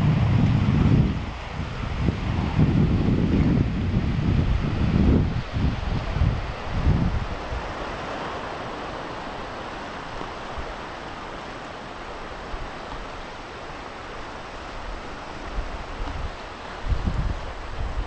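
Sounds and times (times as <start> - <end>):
wind buffeting microphone: 0.0 - 18.0
small waves washing on pebbly shore: 3.7 - 18.0.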